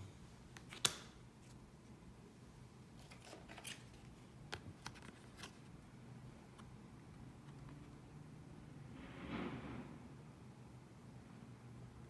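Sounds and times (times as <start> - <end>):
card snapping: 0.6 - 1.2
cards clicking and sliding: 0.6 - 1.6, 3.0 - 5.6.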